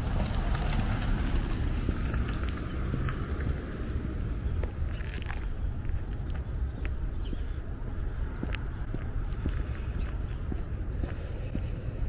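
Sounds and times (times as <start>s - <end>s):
low street rumble: 0.0s - 12.0s
footstep clicks: 1.3s - 12.0s
bird chirp: 4.2s - 11.8s.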